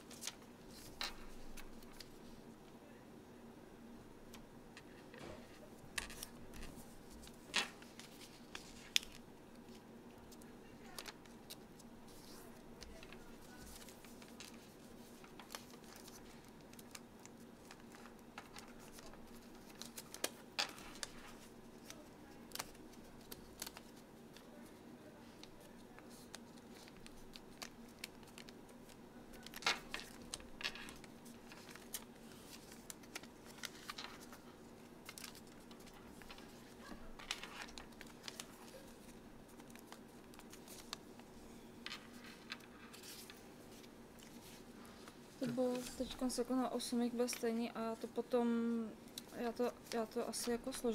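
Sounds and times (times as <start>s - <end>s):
paper rustling and crinkling: 0.0s - 2.4s, 4.8s - 48.0s
faint steady hum: 0.0s - 50.9s
small crackles and taps: 12.8s - 24.5s, 25.4s - 34.4s, 35.0s - 36.6s.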